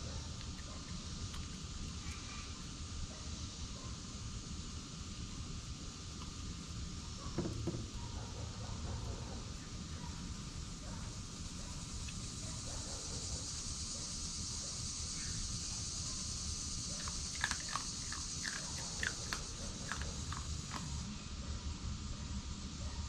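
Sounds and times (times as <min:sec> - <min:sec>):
insect chorus: 0:00.0 - 0:23.0
fox crunching dry food: 0:00.3 - 0:02.2, 0:16.9 - 0:21.1.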